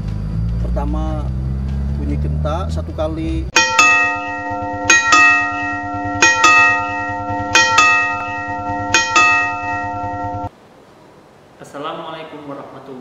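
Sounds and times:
railway signal bell ringing: 0:03.5 - 0:10.5
low hum: 0:03.6 - 0:10.5.

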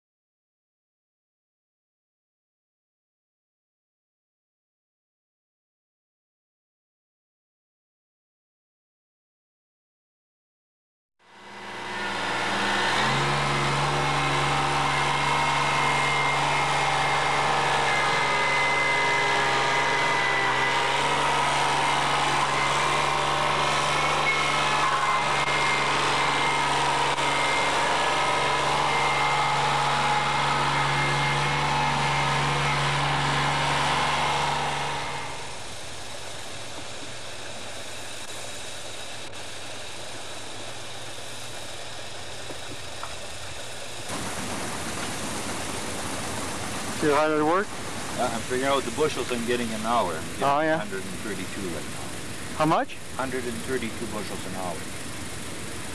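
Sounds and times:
tractor engine running: 0:40.0 - 0:55.9.

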